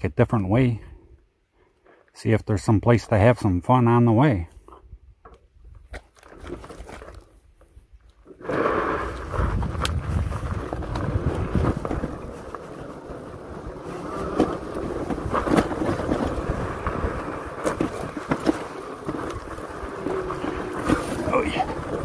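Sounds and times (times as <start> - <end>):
tyres on sand: 8.2 - 22.0
wind on microphone: 8.4 - 12.4
bike knocks and rattles: 9.3 - 22.0.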